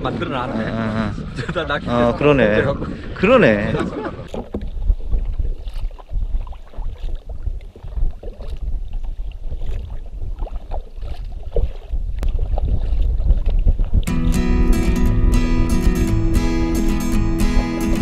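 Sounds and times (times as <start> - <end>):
wind rumbling on microphone: 0.0 - 18.0
paddle splashing in water: 2.9 - 14.3.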